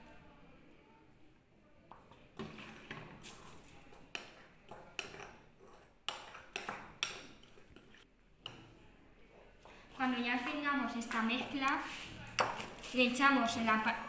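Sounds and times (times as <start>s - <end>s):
spoon scraping paste: 2.5s - 8.8s.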